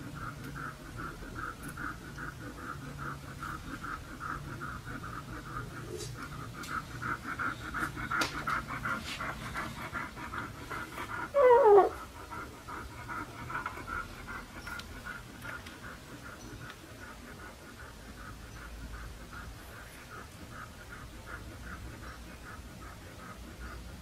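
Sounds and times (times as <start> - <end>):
dog panting quickly: 0.0 - 24.0
puppy squealing: 11.4 - 12.0.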